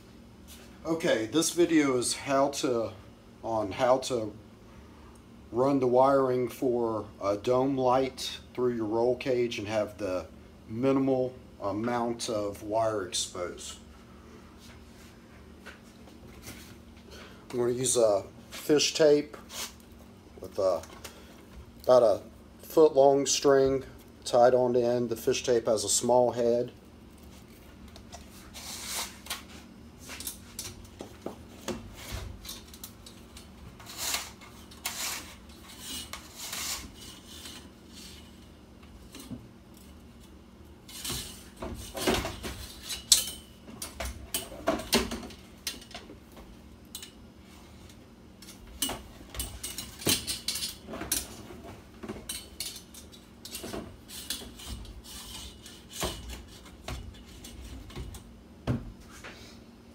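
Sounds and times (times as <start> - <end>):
fish tape scraping and rattling: 33.8 - 38.4.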